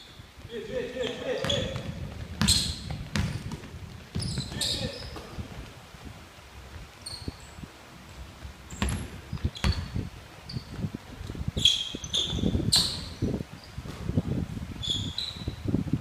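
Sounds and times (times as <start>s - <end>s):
sneakers squeaking on gym floor: 1.0s - 5.5s, 7.0s - 7.6s, 8.7s - 10.8s, 11.6s - 14.2s, 14.8s - 15.8s
running feet thudding: 1.3s - 5.8s
basketball bouncing: 1.4s - 5.4s, 8.7s - 10.0s.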